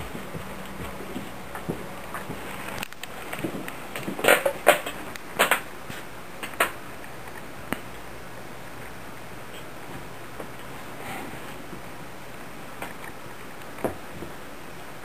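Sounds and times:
sharp clicks and knocks: 0:00.0 - 0:05.7, 0:06.4 - 0:08.0.

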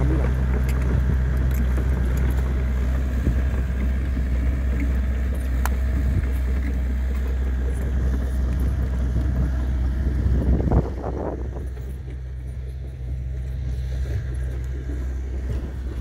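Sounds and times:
diesel excavator engine running: 0:00.0 - 0:16.0.

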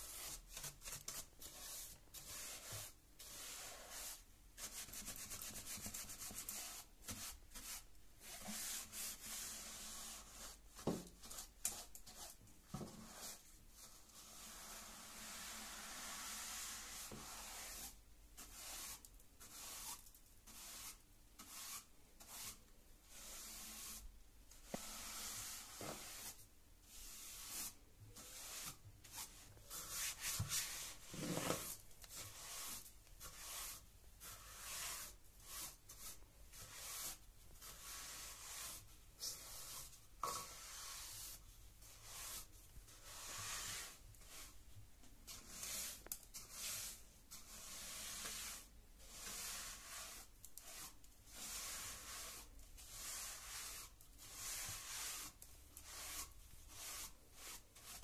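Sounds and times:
brush sweeping wooden stair: 0:27.2 - 0:37.2.

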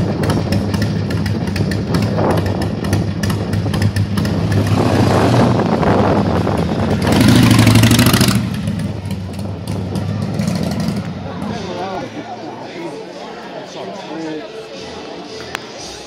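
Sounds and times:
motorcycle engine revving: 0:00.0 - 0:11.8
motorcycle engines at low revs: 0:00.0 - 0:11.8.

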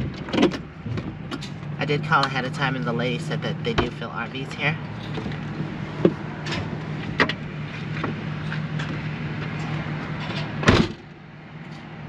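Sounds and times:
vehicle engine idling: 0:00.0 - 0:12.0
loud clunk: 0:10.2 - 0:11.0.

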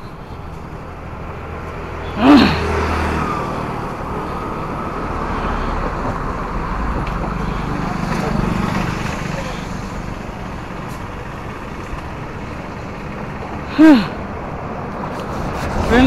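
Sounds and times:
road traffic: 0:00.0 - 0:16.0
motor vehicle passing close: 0:00.6 - 0:16.0
wind rumble on microphone: 0:14.7 - 0:16.0.

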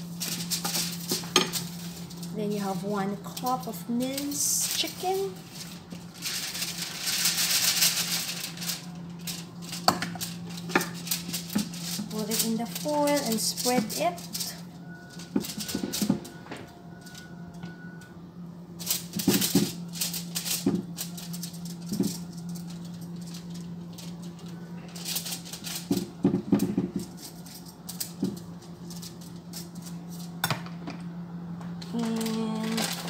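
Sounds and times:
spoon scraping on foil: 0:00.0 - 0:16.3, 0:18.7 - 0:30.4, 0:31.8 - 0:33.0
foil crinkling: 0:00.0 - 0:17.6, 0:18.7 - 0:30.4, 0:31.8 - 0:33.0
steady low hum: 0:00.0 - 0:33.0.

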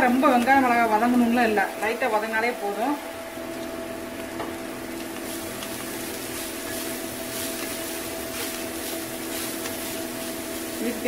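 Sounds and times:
faint frying sizzle: 0:00.0 - 0:11.0
steady mechanical hum: 0:00.0 - 0:11.0
wooden spatula scraping: 0:05.2 - 0:11.0.

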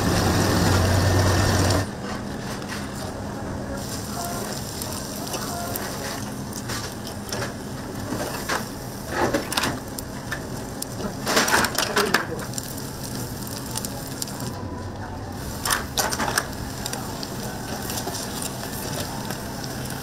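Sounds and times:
seafood sizzling on a grill: 0:00.0 - 0:01.9, 0:03.7 - 0:14.6, 0:15.3 - 0:20.0
crackling and clatter: 0:03.8 - 0:14.6, 0:15.4 - 0:20.0.

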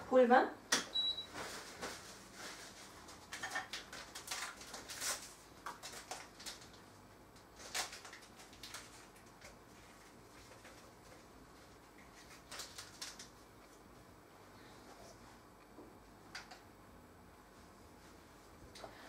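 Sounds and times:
paper sachet crinkling: 0:01.5 - 0:06.8, 0:07.6 - 0:11.2, 0:12.0 - 0:13.4.

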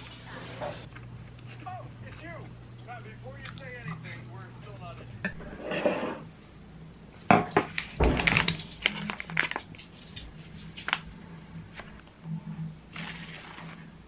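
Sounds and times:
paper packet rustling: 0:07.7 - 0:11.1, 0:12.9 - 0:13.8.

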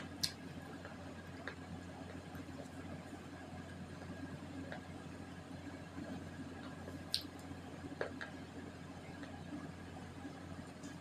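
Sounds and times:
low electrical hum and hiss: 0:00.0 - 0:11.0.

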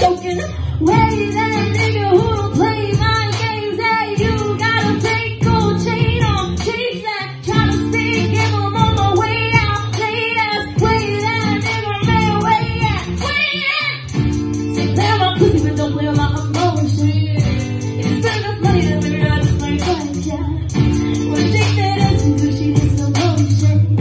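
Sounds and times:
woman singing into microphone: 0:00.0 - 0:24.0
low bass pattern: 0:04.2 - 0:06.7, 0:14.1 - 0:24.0.

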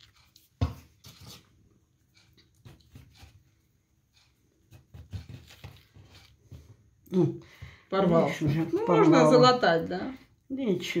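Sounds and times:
hands patting dough: 0:00.0 - 0:07.8.

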